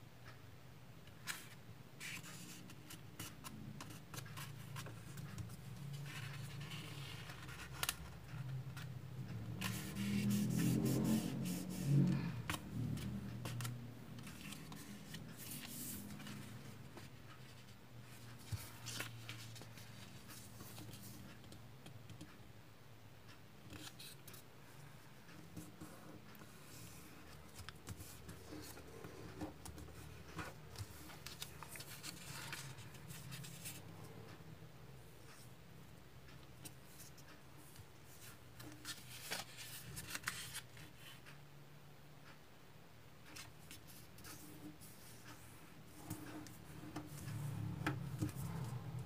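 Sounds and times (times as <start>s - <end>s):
paper crinkling and rustling: 30.4s - 33.8s, 38.6s - 41.1s.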